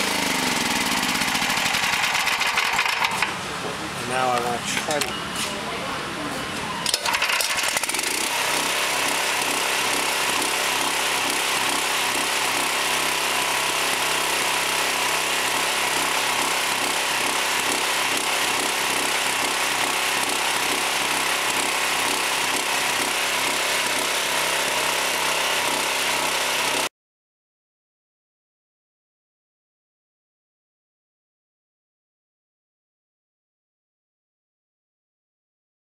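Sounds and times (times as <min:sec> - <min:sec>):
machine running steadily: 0:00.0 - 0:26.9.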